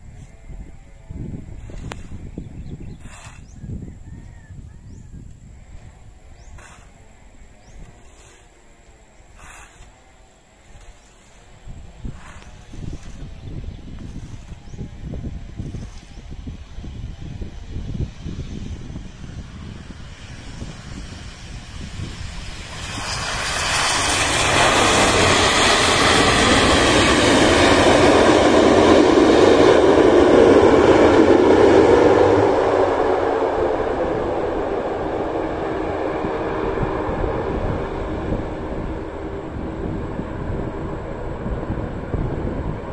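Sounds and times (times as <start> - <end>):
turboprop airliner roar: 0.0 - 42.9.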